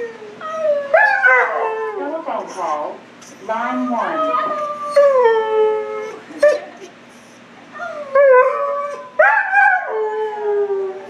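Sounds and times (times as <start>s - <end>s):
dog howling: 0.0s - 2.3s, 3.8s - 6.6s, 7.8s - 11.0s.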